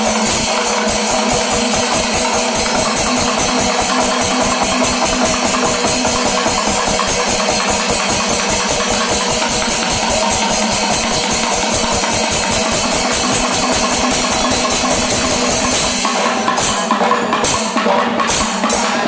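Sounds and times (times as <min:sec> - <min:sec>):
cymbals ringing: 0:00.0 - 0:19.0
drums in rapid beat: 0:00.0 - 0:19.0.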